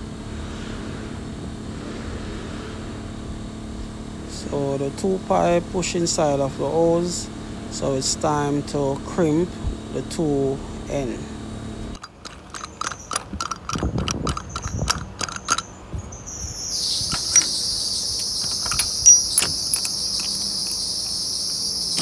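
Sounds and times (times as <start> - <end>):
high-pitched insect chorus: 12.6 - 22.0.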